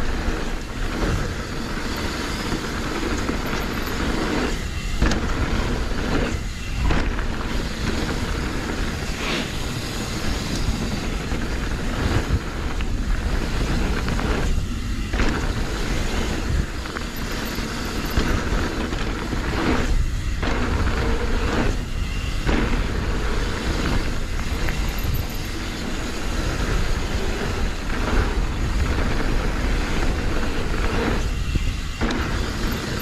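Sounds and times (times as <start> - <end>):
bike knocks and rattles: 0.0 - 33.0
bike tyres rolling over dirt: 0.0 - 33.0
wind buffeting microphone: 0.0 - 33.0.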